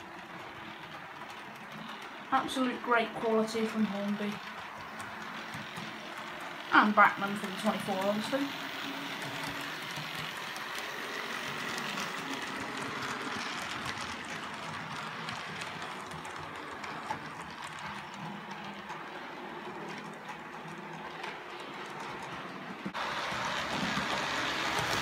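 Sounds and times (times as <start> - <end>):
model train whirring on track: 0.0 - 25.0
wheel clicks: 0.0 - 25.0.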